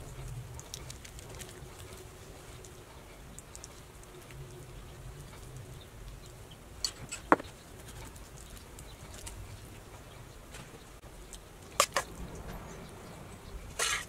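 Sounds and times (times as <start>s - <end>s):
fork scraping on metal baking sheet: 13.8s - 14.0s.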